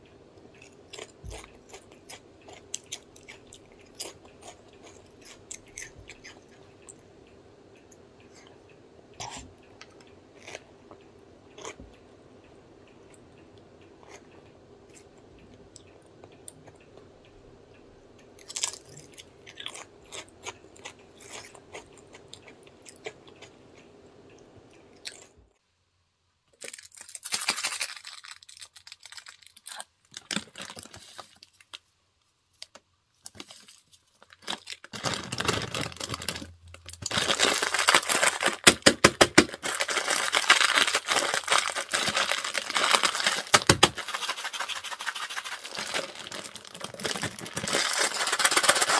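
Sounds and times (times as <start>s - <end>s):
crunchy chewing of chips: 0.5s - 7.0s, 9.2s - 11.8s, 18.4s - 23.9s, 26.5s - 31.9s, 32.6s - 48.9s
dry noodles crushed in a bag: 26.6s - 31.7s, 33.4s - 48.9s
plastic packet crinkling: 26.6s - 31.8s, 33.3s - 48.9s.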